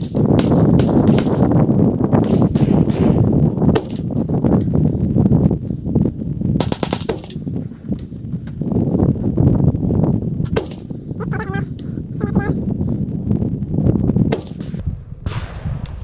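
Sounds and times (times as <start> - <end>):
rifle shots: 0.0 - 4.4, 6.6 - 7.6, 10.5 - 11.0, 14.3 - 16.0
continuous low rumble: 0.0 - 16.0.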